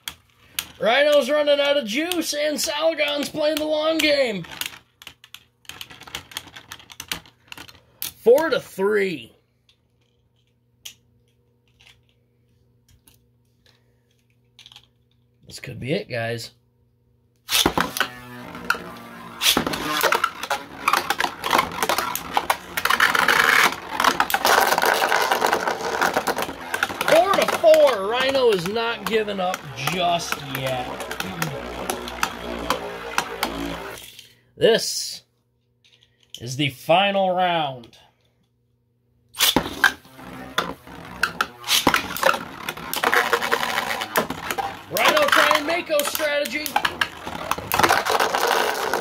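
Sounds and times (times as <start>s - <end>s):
spinning tops whirring: 17.5s - 34.2s, 39.4s - 49.0s
spinning tops clacking and rattling: 17.6s - 34.2s, 40.6s - 49.0s.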